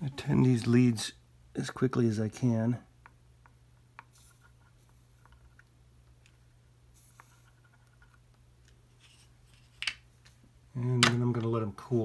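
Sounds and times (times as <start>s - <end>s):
low room hum: 0.0s - 12.0s
soft hisses: 6.9s - 7.8s.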